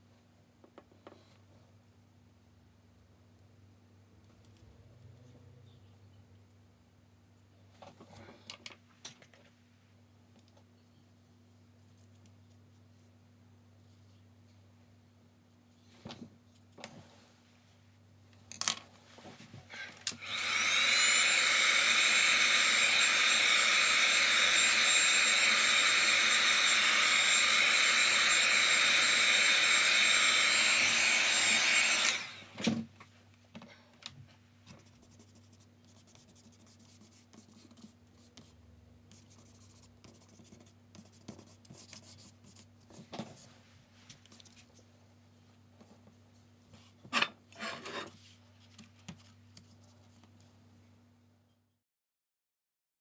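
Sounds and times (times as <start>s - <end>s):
hot-air blower whine and rush: 19.7s - 32.8s.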